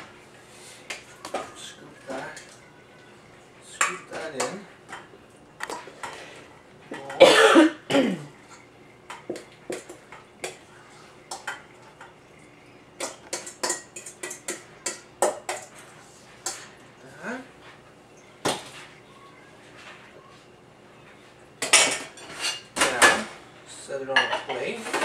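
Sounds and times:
person coughing: 7.2s - 8.3s.

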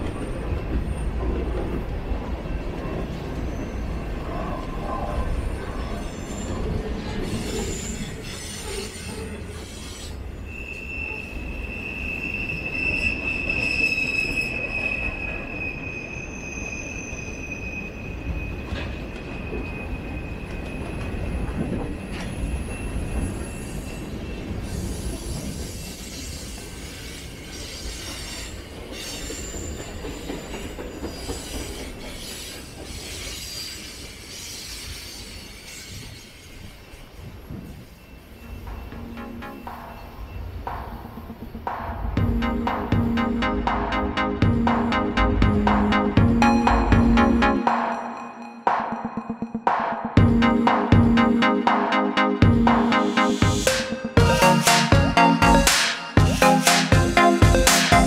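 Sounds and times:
train wheels rumbling on rails: 0.0s - 10.4s, 17.9s - 37.9s
high-pitched wheel squeal: 5.4s - 21.2s.

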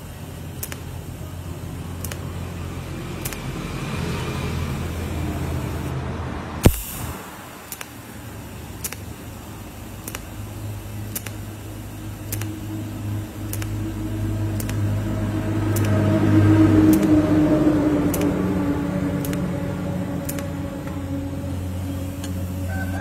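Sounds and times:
welder electrical hum: 0.0s - 6.0s, 6.6s - 23.0s
sharp crack: 6.6s - 8.0s
light ticks: 13.5s - 13.8s, 14.6s - 14.8s, 15.7s - 16.0s, 19.2s - 19.5s.

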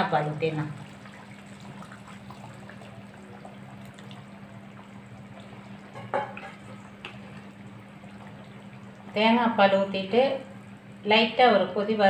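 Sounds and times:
curry bubbling in pot: 0.4s - 9.5s
liquid pouring: 0.8s - 9.2s
ladle knocking against pot: 5.9s - 6.6s.

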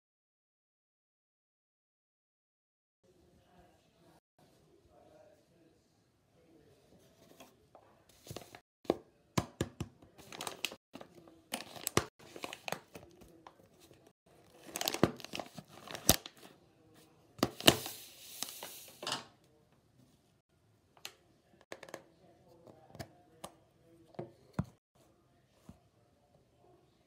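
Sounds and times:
plastic tearing: 14.5s - 16.4s
plastic wrapper crinkling: 14.5s - 16.4s.

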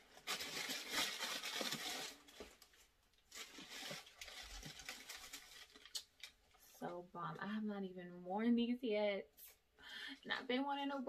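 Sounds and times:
tissue paper rustling: 0.0s - 6.4s.

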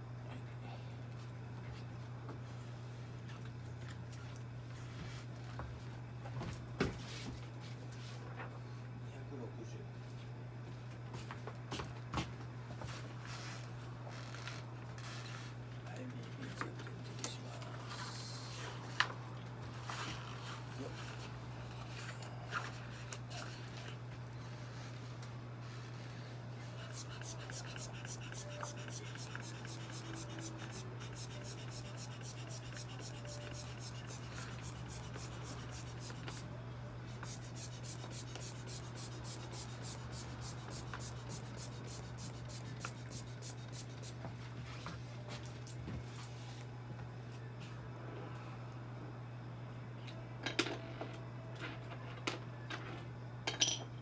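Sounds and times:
steady low hum: 0.0s - 51.6s
hand scratching cat fur: 26.8s - 36.4s.

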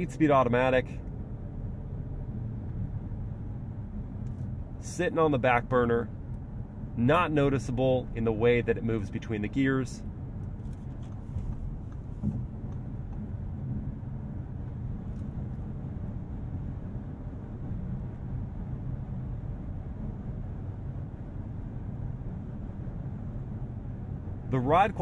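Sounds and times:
faint engine hum: 0.0s - 25.0s
tyre and road noise: 10.1s - 17.2s.

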